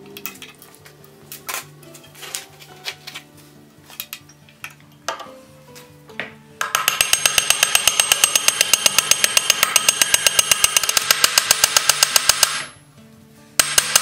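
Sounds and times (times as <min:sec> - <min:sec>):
hammer peening rivets on iron: 0:06.6 - 0:12.7.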